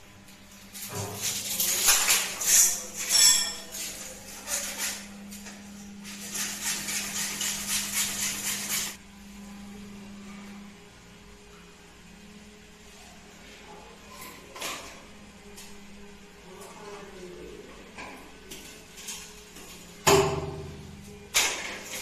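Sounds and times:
steady low hum: 4.0s - 14.2s.

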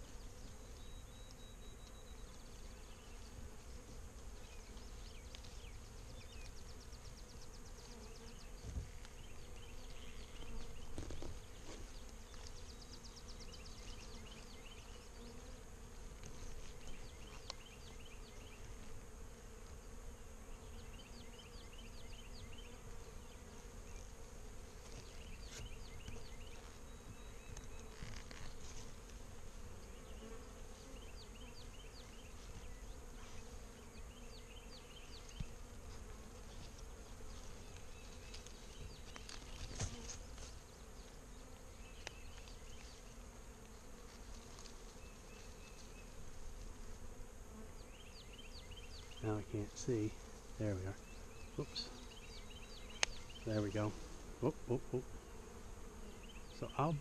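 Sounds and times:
bee swarm buzzing: 0.0s - 57.0s.

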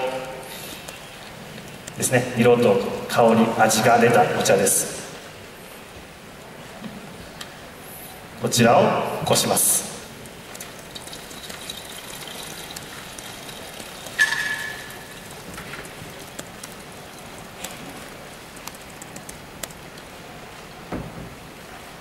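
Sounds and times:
tea pouring: 9.4s - 18.5s.

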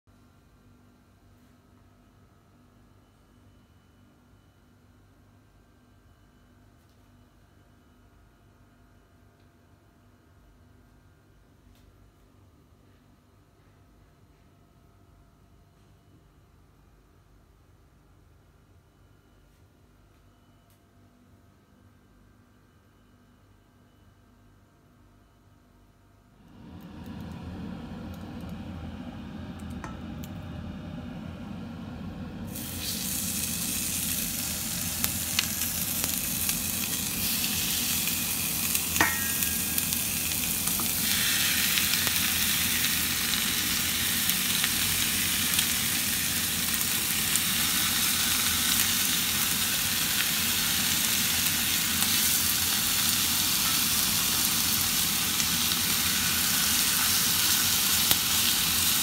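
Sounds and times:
chicken sizzling in frying pan: 31.8s - 59.0s.

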